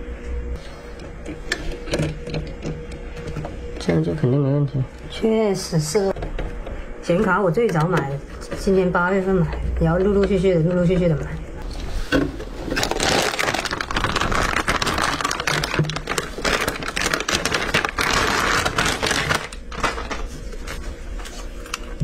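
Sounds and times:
crinkling handling noise: 11.6s - 22.0s.

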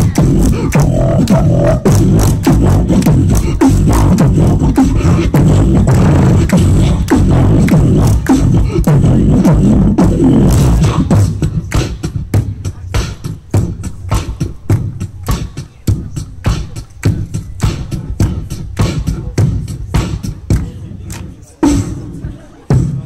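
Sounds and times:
person beatboxing into microphone: 0.0s - 23.0s.

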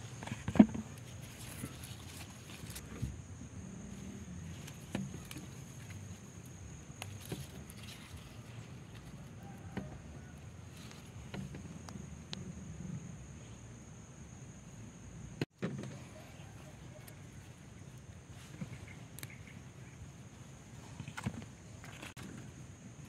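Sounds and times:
light clicks and rustles: 0.1s - 3.1s, 4.5s - 12.0s.

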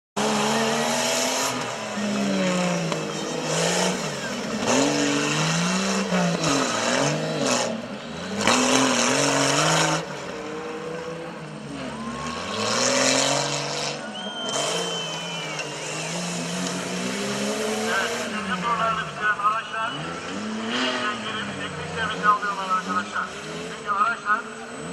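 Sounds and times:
off-road engine revving: 0.2s - 24.9s
loud noise: 11.7s - 24.1s.

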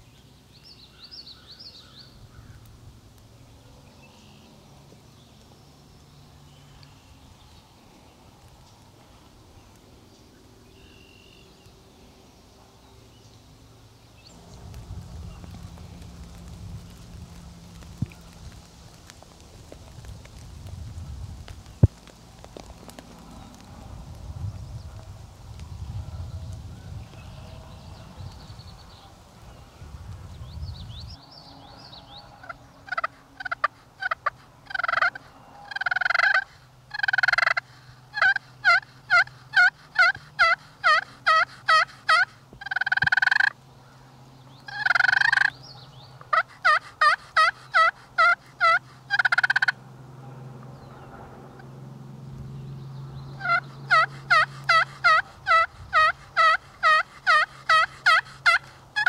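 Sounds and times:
turkey yelping: 32.4s - 43.5s, 44.7s - 45.5s, 46.3s - 49.8s, 53.4s - 59.0s.

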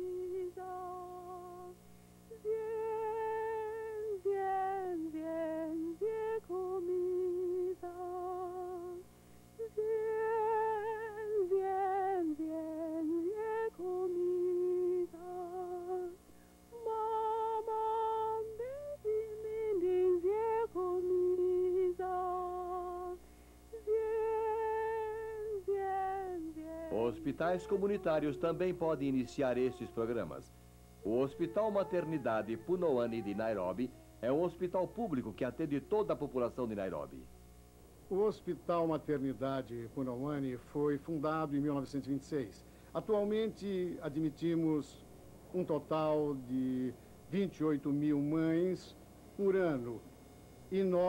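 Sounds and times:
woman humming a slow tune: 0.0s - 30.1s, 31.0s - 36.0s.

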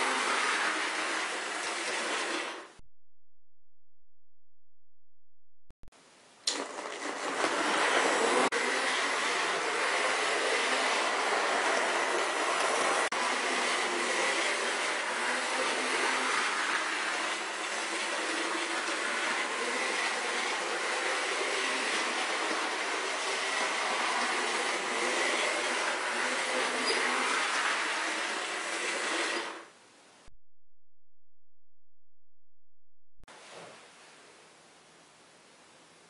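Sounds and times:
model train motor whirring: 0.0s - 2.7s, 6.5s - 29.7s.

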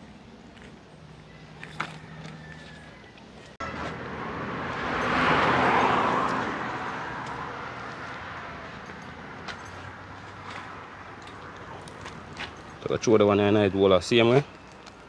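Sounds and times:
road vehicle passing: 0.0s - 15.0s.

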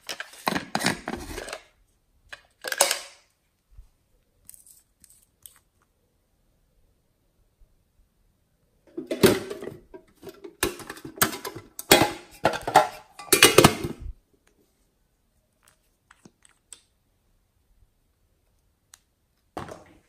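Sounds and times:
metal tin clattering: 8.9s - 14.0s.

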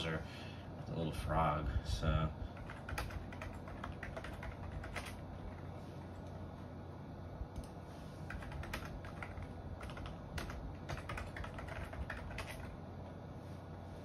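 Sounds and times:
steady low hum: 0.0s - 14.0s
keyboard typing: 2.6s - 6.4s, 7.5s - 12.8s.

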